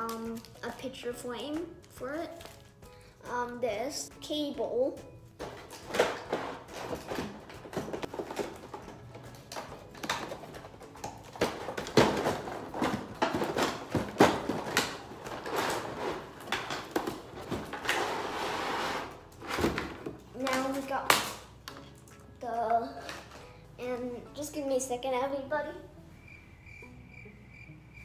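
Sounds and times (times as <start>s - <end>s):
cardboard rustling and scraping: 11.4s - 20.0s.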